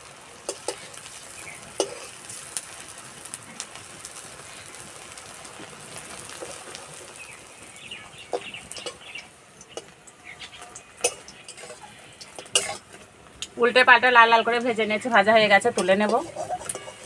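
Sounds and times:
cheese balls sizzling in oil: 0:00.0 - 0:17.0
metal spatula clinks: 0:15.8 - 0:17.0.

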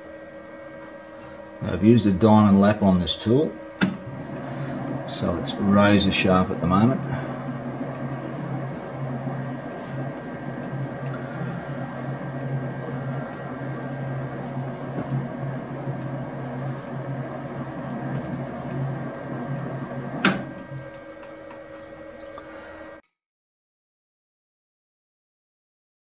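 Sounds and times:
sharp mechanical clunk: 0:03.8 - 0:04.1
metal lathe running: 0:03.8 - 0:21.3.

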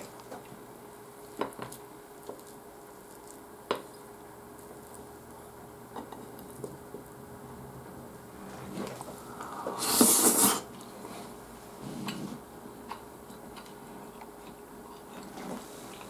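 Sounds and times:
soft eating mouth sounds: 0:08.7 - 0:11.2, 0:12.0 - 0:16.0
loud rushing mouth noise: 0:09.0 - 0:10.7.

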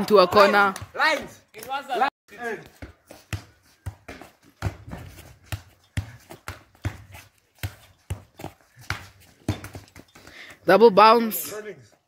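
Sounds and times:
football bouncing on stone: 0:02.6 - 0:10.3.

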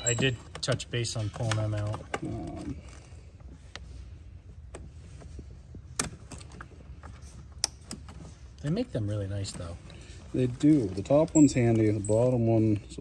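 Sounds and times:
wires rattling: 0:00.0 - 0:03.2, 0:05.2 - 0:12.8.

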